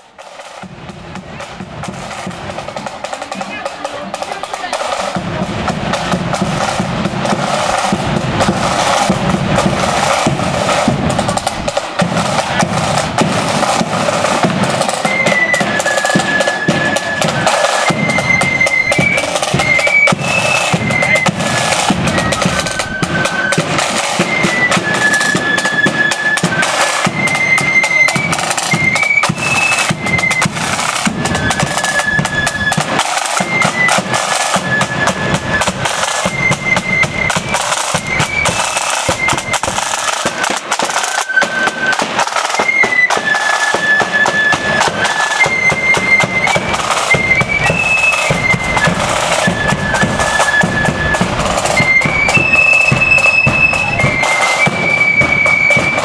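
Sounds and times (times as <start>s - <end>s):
flutes playing melody: 0.0s - 56.0s
side drums beating: 0.0s - 56.0s
bass drum: 0.6s - 14.8s.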